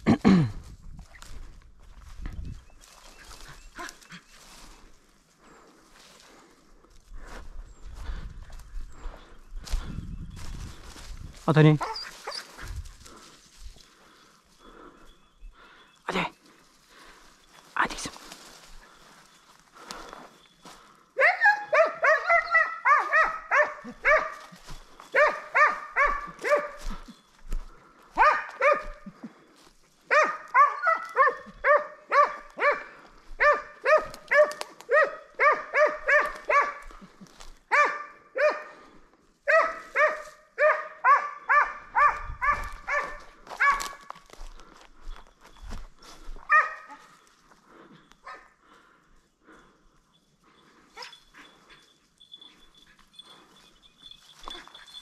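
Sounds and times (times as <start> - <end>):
hound barking rapidly: 21.2 - 24.5, 25.1 - 27.0, 28.2 - 29.0, 30.1 - 36.9, 37.7 - 38.8, 39.4 - 44.0, 46.5 - 47.0.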